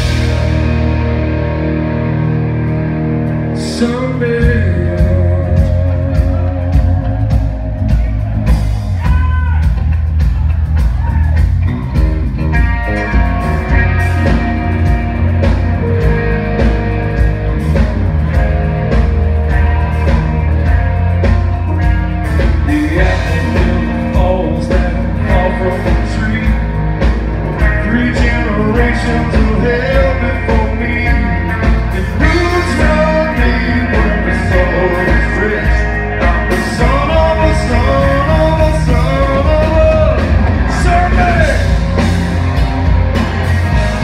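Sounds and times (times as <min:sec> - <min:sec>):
live rock band playing: 0:00.0 - 0:44.0.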